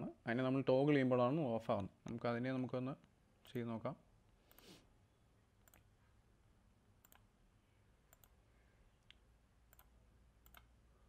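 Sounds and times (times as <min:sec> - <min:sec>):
computer mouse clicks: 0:05.6 - 0:05.9, 0:07.0 - 0:07.3, 0:08.1 - 0:08.4, 0:09.0 - 0:10.7.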